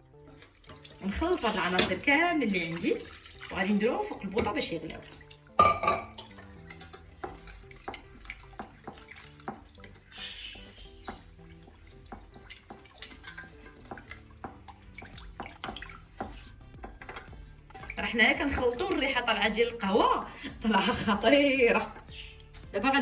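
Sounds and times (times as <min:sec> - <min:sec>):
faint background music: 0:00.0 - 0:23.0
utensil scraping a saucepan: 0:00.2 - 0:22.8
knock on saucepan: 0:05.6 - 0:06.2.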